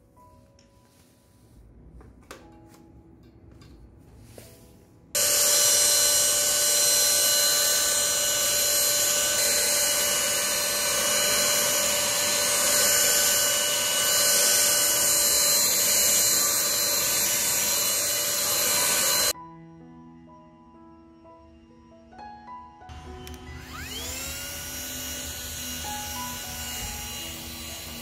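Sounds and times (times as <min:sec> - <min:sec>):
vacuum motor whine: 0:05.2 - 0:19.4, 0:22.9 - 0:28.0.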